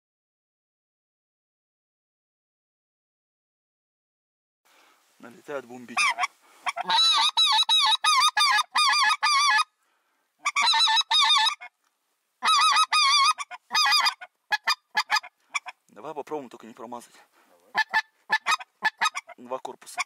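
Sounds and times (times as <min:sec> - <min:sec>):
goose call honking: 0:05.8 - 0:09.7, 0:10.4 - 0:11.7, 0:12.4 - 0:15.8, 0:17.7 - 0:20.0.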